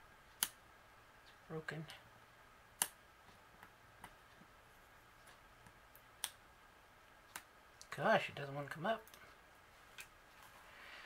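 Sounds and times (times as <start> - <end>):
tweezers clicking: 0.3 - 0.6, 2.8 - 3.0.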